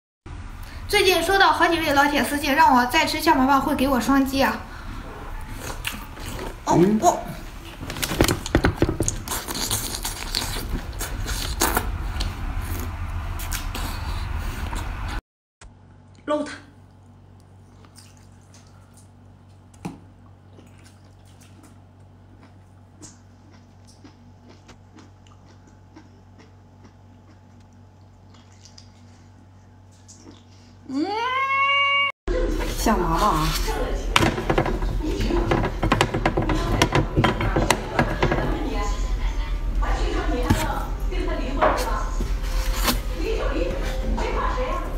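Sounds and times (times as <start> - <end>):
steady low hum: 0.3 - 31.0, 32.3 - 44.9
wet slurping and chewing: 5.3 - 6.6, 7.6 - 15.2, 17.4 - 19.6, 20.3 - 30.8.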